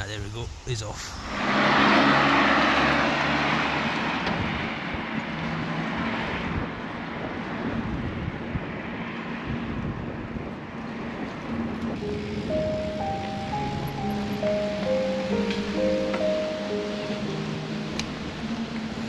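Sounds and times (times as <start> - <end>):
wind and road noise from bicycle: 0.0 - 19.0
soft background music: 12.0 - 19.0.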